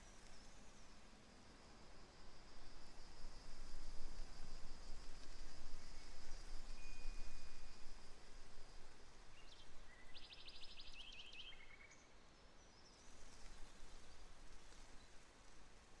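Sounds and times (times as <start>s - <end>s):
low rumble and hiss: 0.0s - 16.0s
faint bird chirps: 9.3s - 13.7s.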